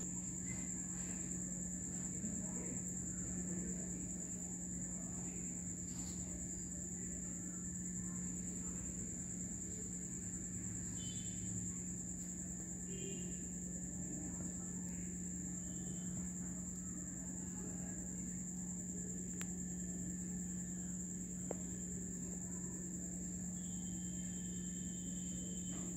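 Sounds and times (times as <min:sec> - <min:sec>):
low steady hum: 0:00.0 - 0:25.9
high-pitched insect chirring: 0:23.5 - 0:25.8.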